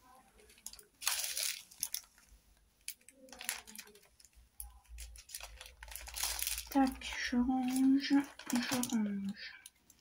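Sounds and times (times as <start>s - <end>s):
plastic bags rustling: 0.1s - 10.0s.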